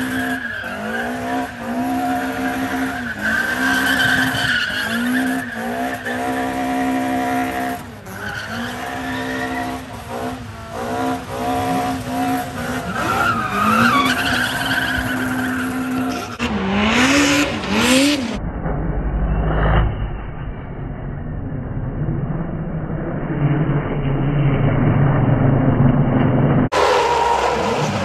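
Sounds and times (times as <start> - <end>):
tire squeal: 0.0 - 18.2, 26.7 - 28.0
car engine revving: 0.0 - 20.6.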